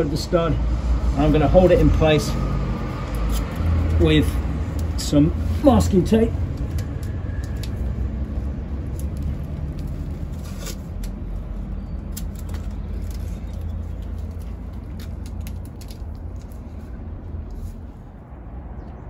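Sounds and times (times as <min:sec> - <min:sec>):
steady low rumble: 0:00.0 - 0:19.0
masking tape tearing: 0:03.1 - 0:05.6, 0:08.8 - 0:16.6.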